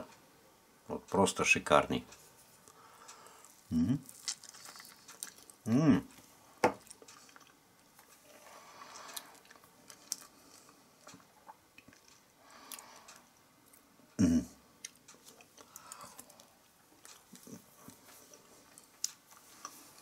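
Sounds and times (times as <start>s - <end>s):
man murmuring: 3.7s - 4.1s, 5.7s - 6.1s, 14.2s - 14.6s.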